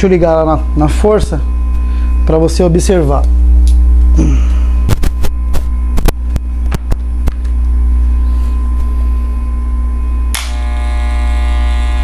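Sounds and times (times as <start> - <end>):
hair clipper humming: 10.3 - 12.0.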